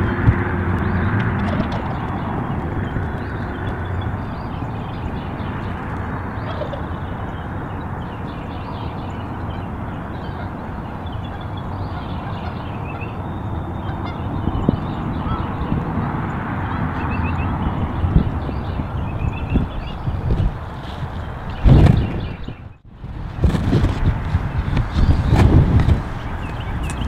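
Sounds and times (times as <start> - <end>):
wild turkeys calling: 6.4 - 7.5, 10.2 - 15.5.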